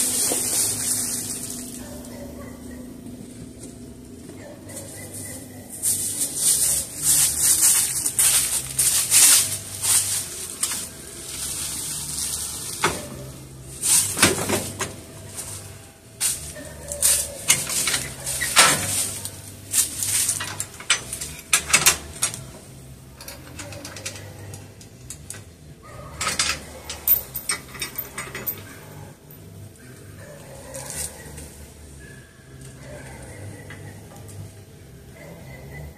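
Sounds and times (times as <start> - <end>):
footsteps crunching dry leaves: 0.0 - 2.4, 3.1 - 21.3
metal clanks and rattles: 5.8 - 29.5.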